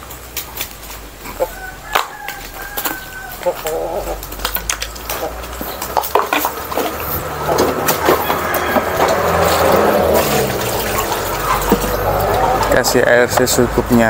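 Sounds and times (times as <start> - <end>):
plastic basin and bucket knocking: 4.6 - 13.6
water pouring into bucket: 6.5 - 12.8.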